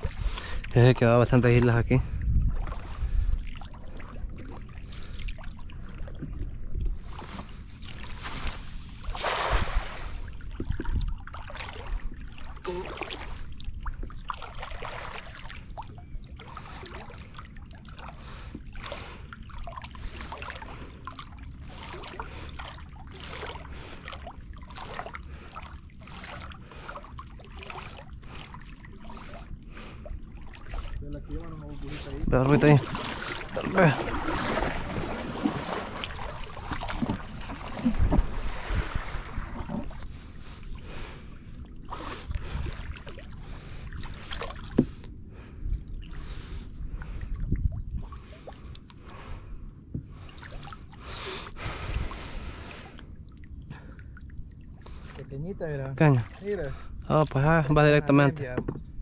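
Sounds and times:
water sloshing against canoe: 0.0s - 59.0s
loud splash: 8.2s - 10.3s, 32.6s - 39.4s.

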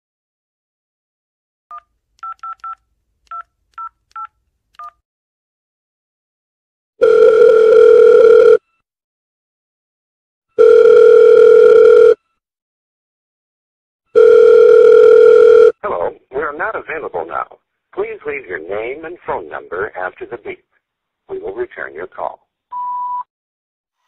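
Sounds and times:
telephone ringback tones: 7.0s - 8.8s, 10.5s - 12.4s, 14.1s - 15.7s.

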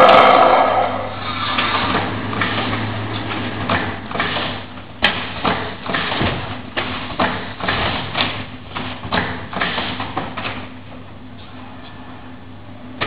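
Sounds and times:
machine hum: 0.0s - 13.0s
slats rattling and sliding: 1.6s - 10.7s.

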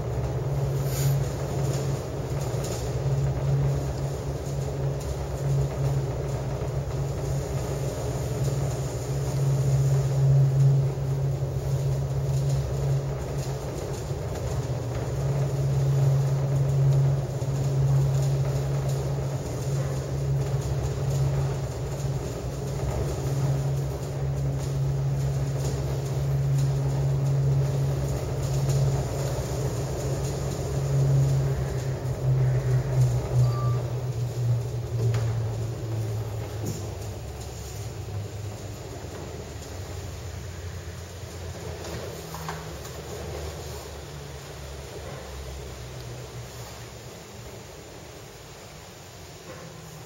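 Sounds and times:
cable car cabin hum and rumble: 0.0s - 50.0s.

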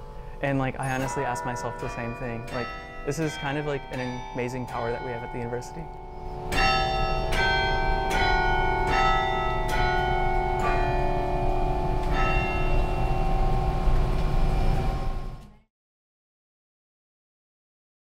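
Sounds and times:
carillon bells playing slow melody: 0.0s - 15.3s.

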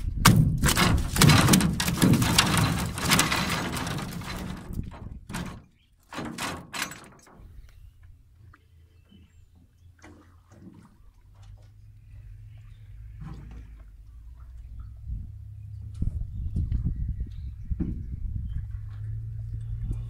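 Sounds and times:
short thumps: 0.0s - 7.5s
knocking and clattering against boat: 0.2s - 7.6s, 16.5s - 19.0s.

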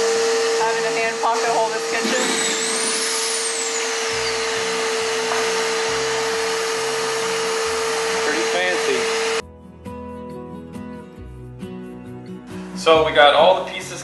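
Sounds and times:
shop vacuum hum and whine: 0.0s - 9.4s
low background music: 4.2s - 14.0s.

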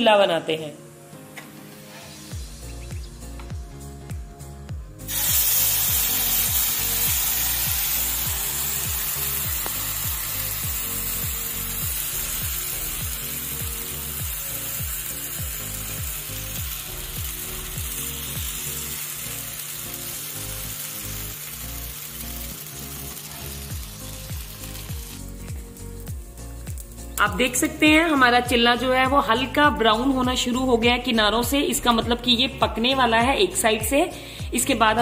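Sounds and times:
background music with low beat: 0.9s - 35.0s
batter sizzling on a hot pan: 5.0s - 27.6s.

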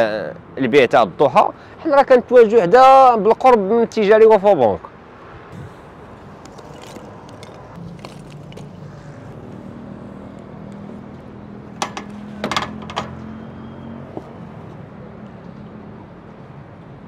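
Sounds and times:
low engine hum: 5.5s - 16.4s.

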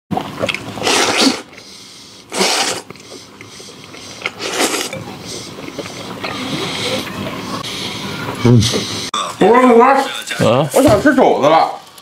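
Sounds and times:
person slurping food: 0.4s - 1.7s, 2.3s - 8.9s.

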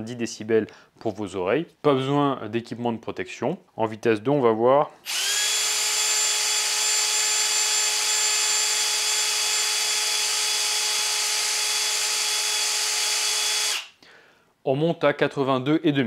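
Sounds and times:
cordless drill motor whine: 5.0s - 13.9s.

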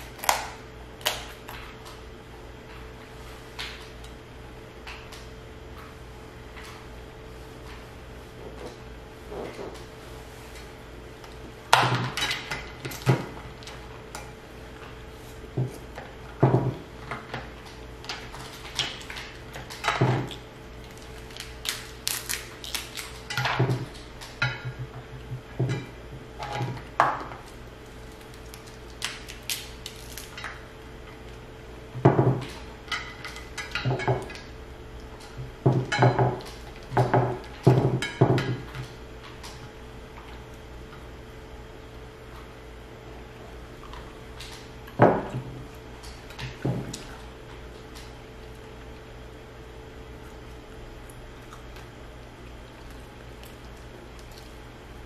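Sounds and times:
crab shells cracking: 18.4s - 23.4s, 27.8s - 30.6s
utensils clattering against dishes: 32.1s - 34.4s.

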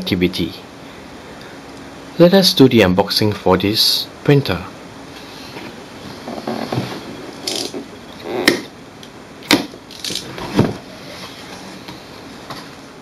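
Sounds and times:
cardboard scraping: 5.5s - 7.9s.

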